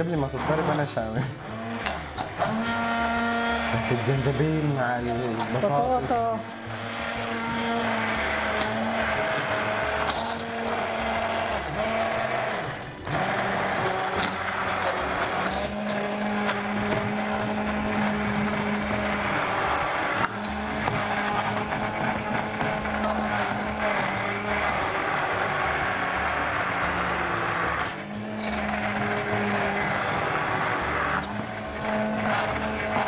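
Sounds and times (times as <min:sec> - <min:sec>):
immersion blender motor whine: 0:00.0 - 0:33.0.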